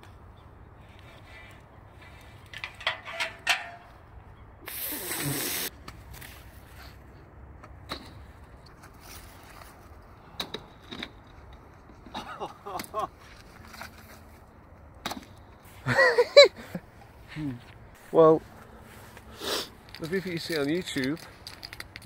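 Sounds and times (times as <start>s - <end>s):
magnet knocks and rope clicks: 19.8s - 22.0s.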